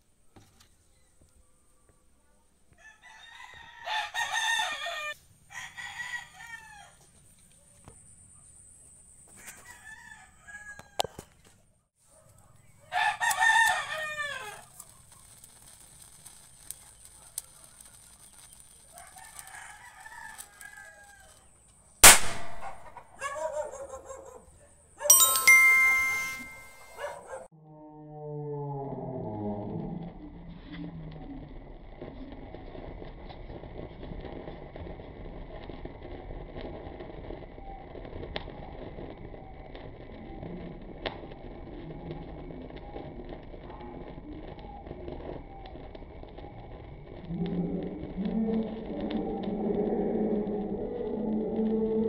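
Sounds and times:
roosters crowing: 2.8s - 7.0s, 9.3s - 11.2s, 12.9s - 14.8s, 18.9s - 21.6s
firecracker crack: 13.1s - 23.2s, 31.6s - 49.3s
chiming bell sound effect: 25.1s - 27.0s.

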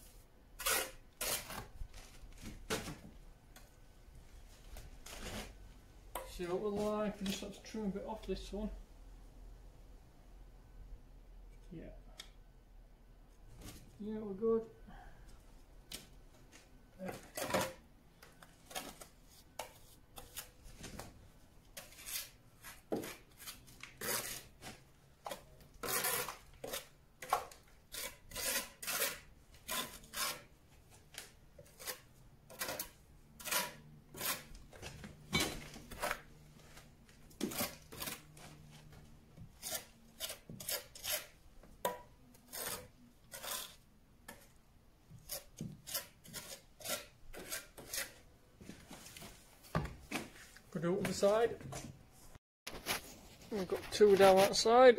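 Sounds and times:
hand tool scraping mortar: 0.6s - 1.7s, 21.8s - 30.5s, 31.2s - 36.3s, 37.4s - 38.6s, 39.4s - 44.5s, 45.1s - 48.3s.

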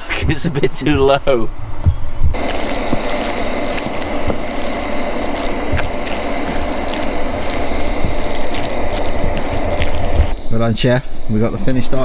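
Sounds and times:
food sizzling in a frying pan: 2.4s - 10.4s.

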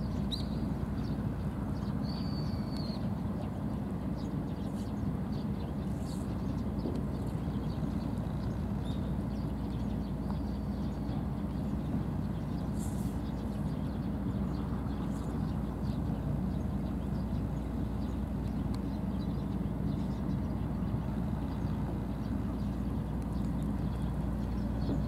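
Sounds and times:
low outdoor rumble: 0.0s - 25.0s
faint high ticks: 18.4s - 18.9s.

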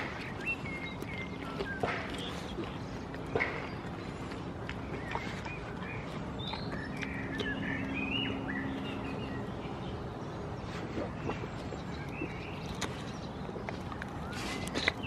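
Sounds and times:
goat biting into pear: 0.0s - 5.6s, 11.0s - 15.0s
small birds chirping: 0.0s - 15.0s.

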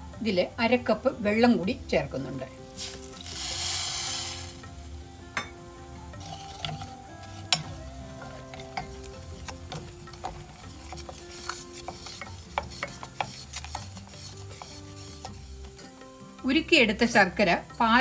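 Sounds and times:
spoon scraping a saucepan: 6.2s - 16.0s.

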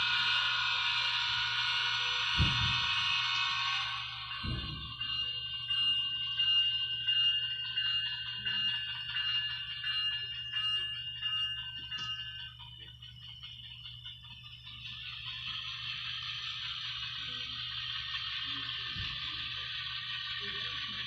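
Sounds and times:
model train high ringing tone: 0.0s - 21.0s.

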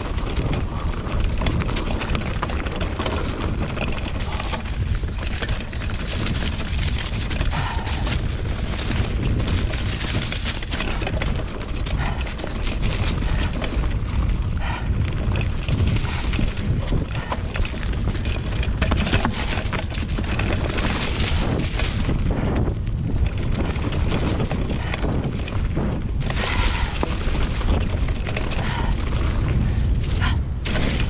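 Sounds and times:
bike chain and frame rattling: 0.0s - 31.0s
wind rumble on microphone: 0.0s - 31.0s
tyres crunching through leaves: 19.1s - 22.3s.

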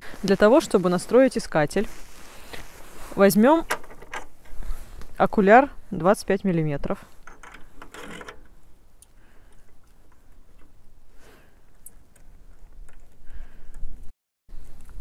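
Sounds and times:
handling rustles: 0.0s - 5.2s.

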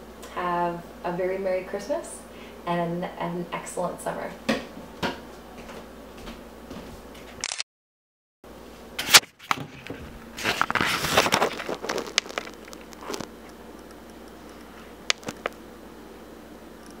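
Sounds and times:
rustling and scraping: 9.0s - 13.5s.

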